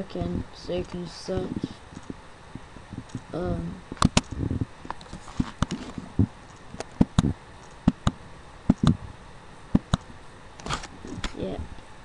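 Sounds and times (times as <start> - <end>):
computer mouse clicking: 0.8 - 2.2, 3.0 - 3.3, 4.0 - 5.8, 6.4 - 9.0, 9.8 - 11.4.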